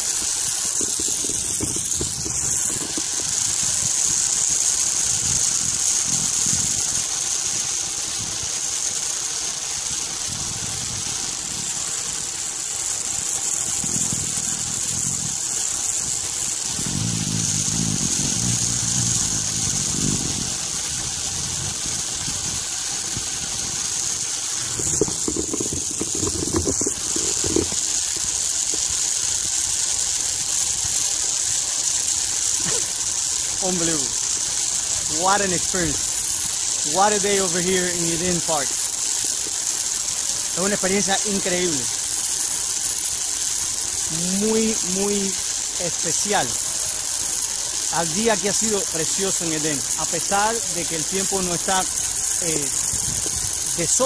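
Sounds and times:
wind buffeting microphone: 0.0 - 4.0, 10.2 - 12.4, 13.7 - 28.9, 52.7 - 53.9
pulley wheels whirring on cable: 0.0 - 54.0.

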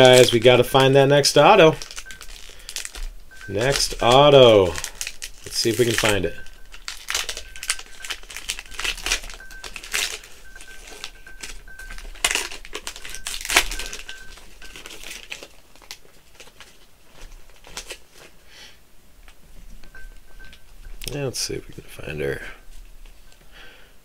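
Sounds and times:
card pack wrapper crinkling and tearing: 0.0 - 18.3.

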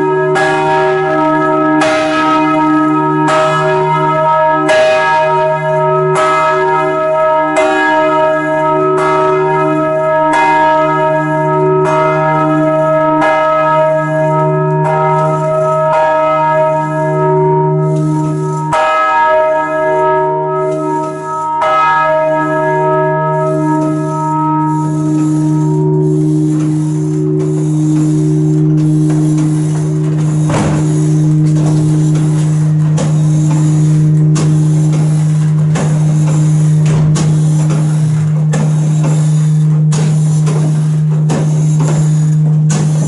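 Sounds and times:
church bells ringing: 0.0 - 43.0
deep steady hum: 22.2 - 43.0.

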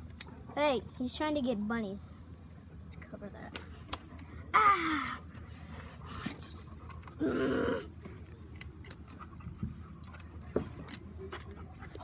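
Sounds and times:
faint clicks and rustles: 8.0 - 12.0
dog sniffing and panting: 8.9 - 12.0.

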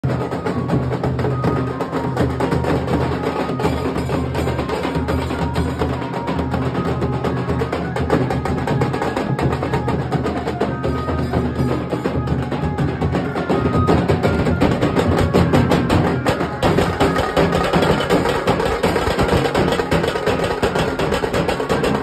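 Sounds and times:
large drums beaten with sticks: 0.0 - 22.0
fast drum stick strokes: 14.7 - 22.0.

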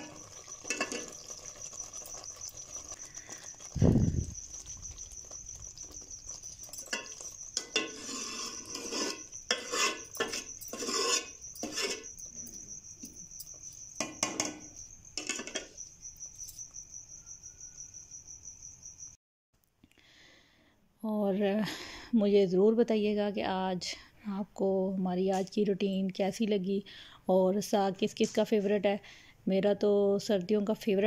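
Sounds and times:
metal ladle scraping a pot: 0.0 - 3.8, 5.8 - 12.6, 14.0 - 15.7
cricket trilling: 0.0 - 19.2.

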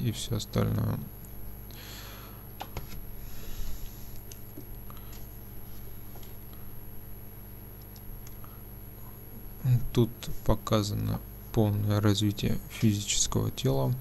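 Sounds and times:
low electrical hum: 0.0 - 14.0
soft breath: 3.2 - 4.2.

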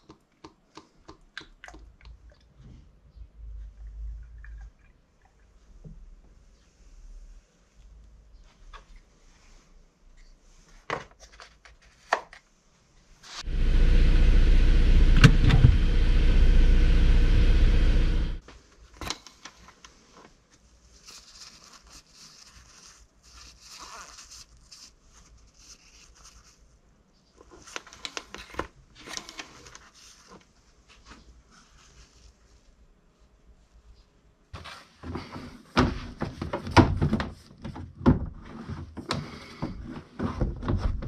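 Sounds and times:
car engine idling: 13.4 - 18.4.

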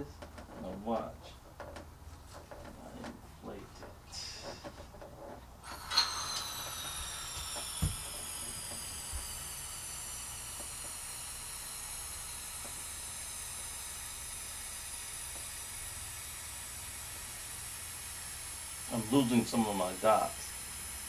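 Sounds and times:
helium hissing into balloon: 5.6 - 21.0
high whistling tones: 5.7 - 13.7.

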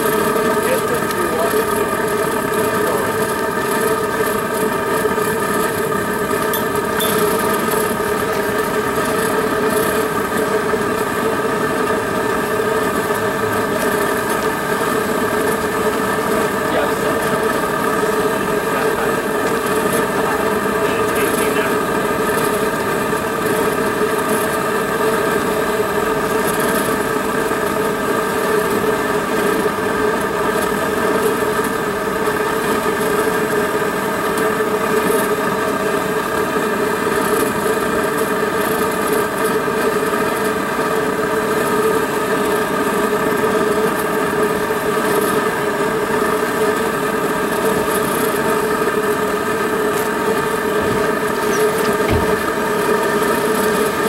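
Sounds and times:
propane flame roaring: 0.0 - 54.0.

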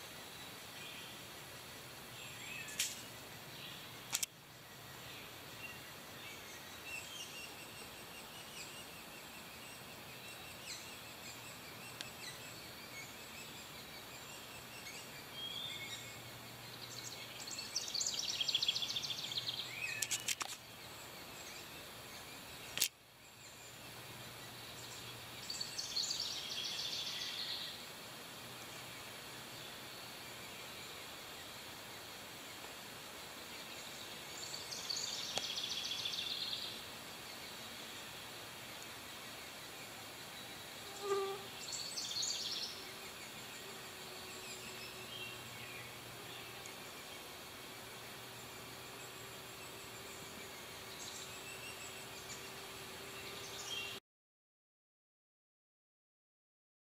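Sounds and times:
sharp clicks: 4.1 - 4.3, 22.8 - 23.0.

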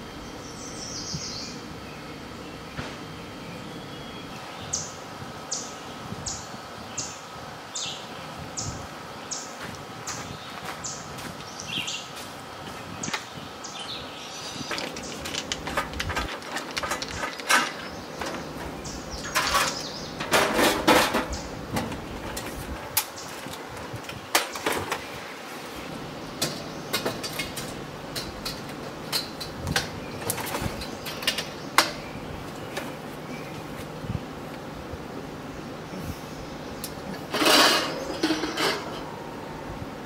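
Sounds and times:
camping gear and dishes clattering: 14.5 - 23.7, 37.1 - 39.2.

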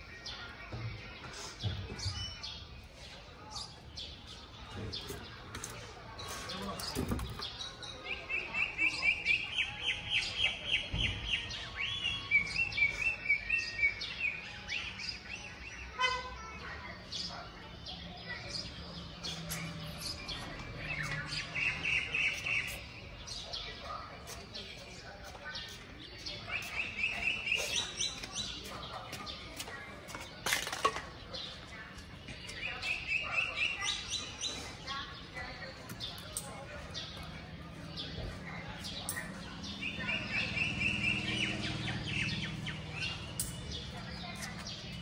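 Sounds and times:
songbird chirping: 0.0 - 45.0.

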